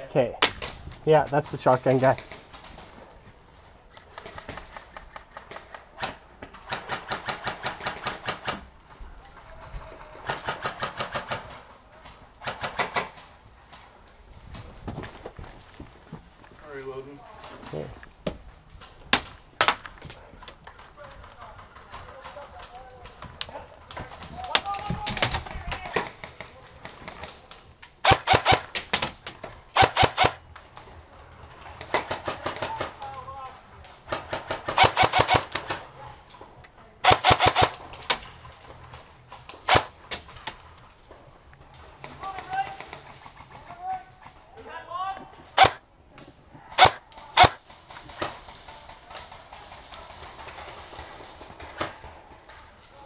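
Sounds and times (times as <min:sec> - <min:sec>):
airsoft gun shots: 0:28.0 - 0:30.4, 0:34.1 - 0:35.8, 0:37.0 - 0:37.8, 0:39.6 - 0:39.9, 0:45.6 - 0:45.8, 0:46.8 - 0:47.6.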